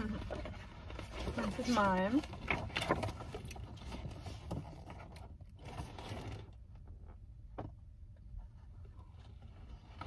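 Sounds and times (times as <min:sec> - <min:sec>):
paper poster rustling: 0:00.0 - 0:06.7.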